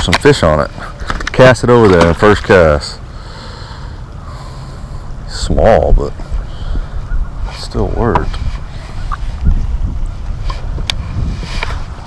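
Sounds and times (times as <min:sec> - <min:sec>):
wind buffeting microphone: 0:05.0 - 0:12.0.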